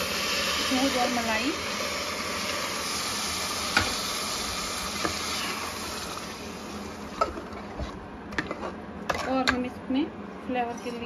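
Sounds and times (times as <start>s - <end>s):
milk sizzling in hot pan: 0.0s - 8.0s.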